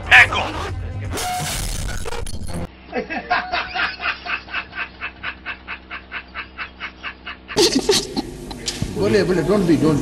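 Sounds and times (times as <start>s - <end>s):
man laughing: 2.8s - 8.6s.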